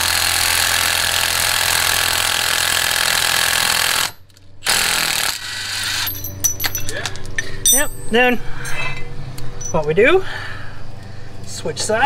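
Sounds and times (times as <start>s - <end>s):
impact wrench hammering: 6.1s - 6.9s.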